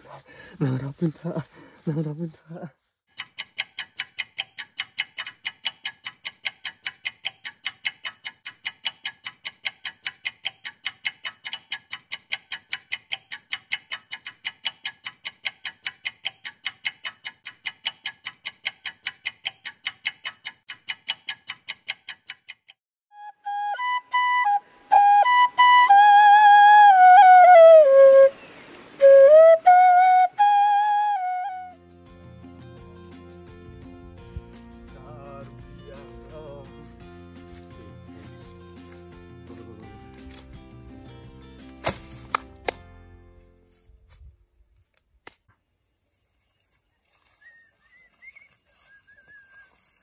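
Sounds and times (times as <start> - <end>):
sharp clock ticking: 3.1 - 22.8
flute melody: 23.1 - 31.9.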